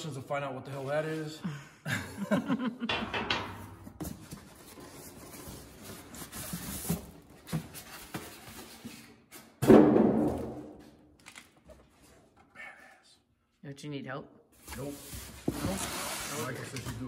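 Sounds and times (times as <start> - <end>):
loud hollow thump: 9.6 - 10.8.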